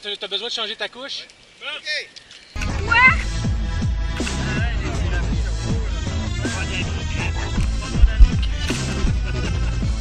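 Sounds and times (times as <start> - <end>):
bass-heavy music with pitch sweeps: 2.6 - 10.0.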